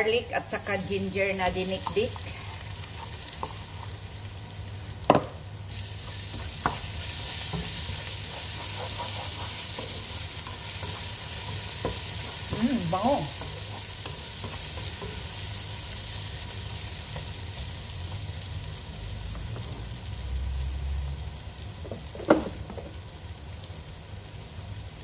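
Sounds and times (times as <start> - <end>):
food sizzling in hot oil: 0.0 - 25.0
spoon stirring in pot: 6.1 - 15.4.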